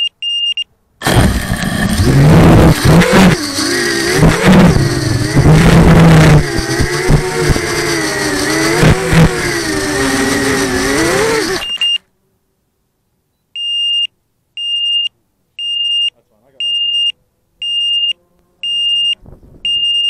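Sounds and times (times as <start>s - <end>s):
drone motors whining: 1.0s - 11.9s
electronic buzzer beeping: 16.7s - 20.0s.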